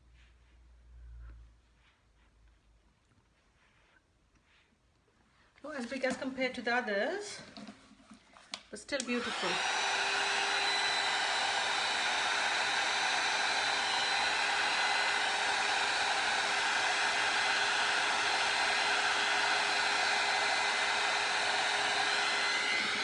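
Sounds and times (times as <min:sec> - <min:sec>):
heat gun blowing air: 0:09.0 - 0:23.0
fan motor whine: 0:09.3 - 0:23.0.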